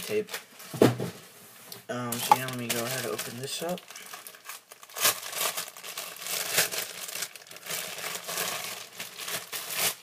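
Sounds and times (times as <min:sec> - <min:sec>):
plastic packaging crinkling: 0:02.1 - 0:10.0.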